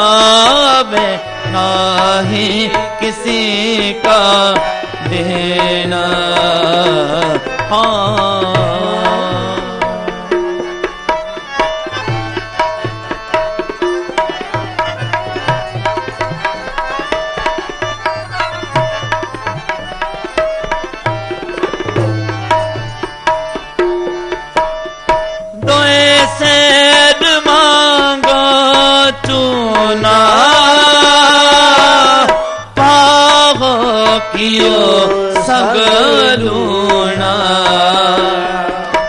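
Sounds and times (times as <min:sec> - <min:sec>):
person singing: 0:00.0 - 0:10.8, 0:25.6 - 0:39.0
harmonium held notes: 0:00.0 - 0:39.0
tabla drumming: 0:00.0 - 0:39.0.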